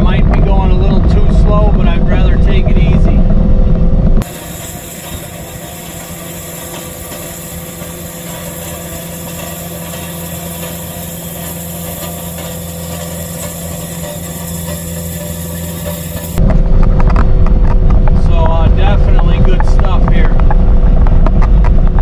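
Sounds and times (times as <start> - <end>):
diesel engine running: 0.0 - 22.0
power rake churning gravel: 4.2 - 16.4.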